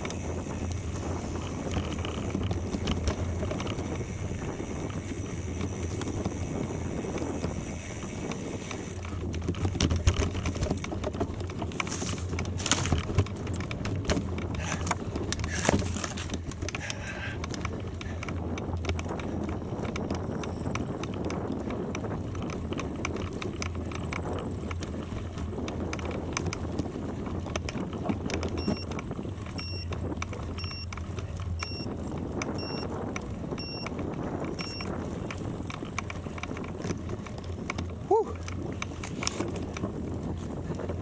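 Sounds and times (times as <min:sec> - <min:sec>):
bicycle tyres crunching on gravel: 0:00.0 - 0:41.0
short electronic beeps: 0:28.6 - 0:28.9, 0:29.6 - 0:29.9, 0:30.6 - 0:30.9, 0:31.6 - 0:31.9, 0:32.6 - 0:32.9, 0:33.6 - 0:33.9, 0:34.6 - 0:34.9.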